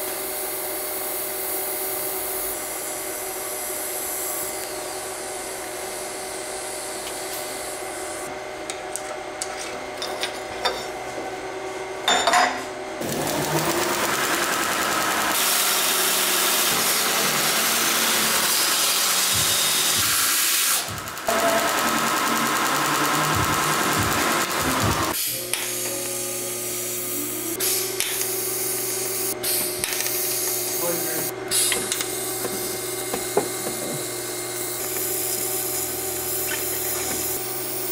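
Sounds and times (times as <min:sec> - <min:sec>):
belt grinder grinding steel: 0:13.0 - 0:30.1.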